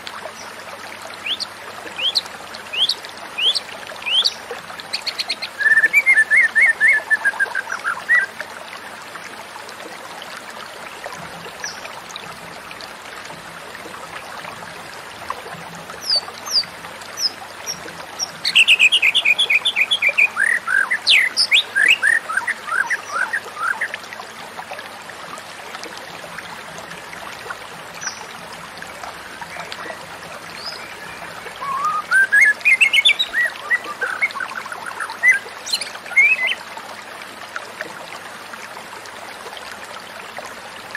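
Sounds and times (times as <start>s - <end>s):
bird singing whistled notes: 5.1s - 8.3s, 30.6s - 34.4s.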